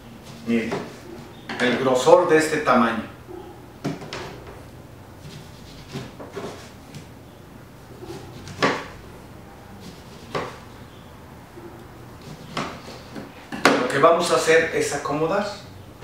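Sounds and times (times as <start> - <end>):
knife slicing onto cutting board: 8.1 - 8.9, 9.8 - 10.6.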